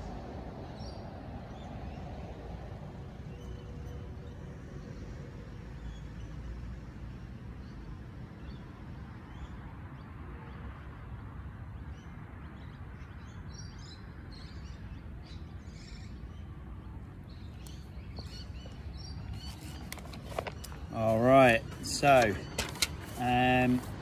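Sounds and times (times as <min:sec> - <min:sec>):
small birds chirping: 0:17.2 - 0:24.0.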